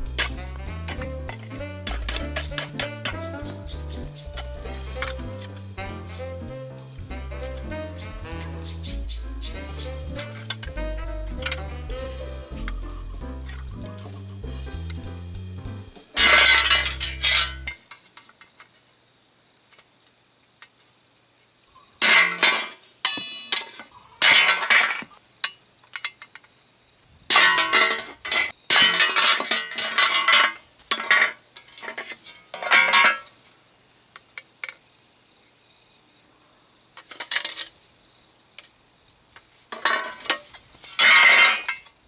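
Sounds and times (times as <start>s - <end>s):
metal ringing: 16.1s - 17.8s, 22.0s - 24.7s.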